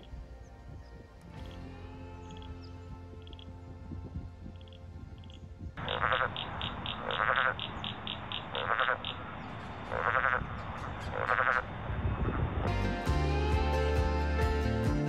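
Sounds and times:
frog rasping pulsed call: 4.6s - 11.7s.

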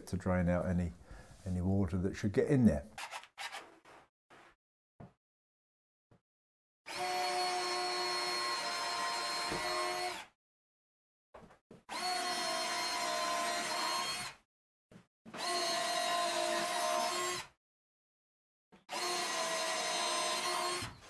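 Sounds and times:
cordless drill running: 6.9s - 10.3s, 11.9s - 14.4s, 15.4s - 17.5s, 18.9s - 21.0s.

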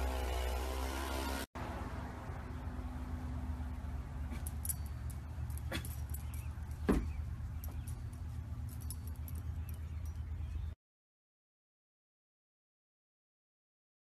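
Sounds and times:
low outdoor rumble: 1.6s - 10.8s
dog collar jingling and clicking: 4.3s - 10.6s.

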